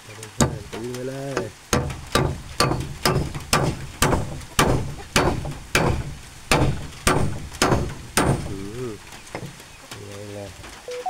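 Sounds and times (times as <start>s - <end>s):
hammer striking nail: 0.4s - 0.8s, 1.7s - 9.5s.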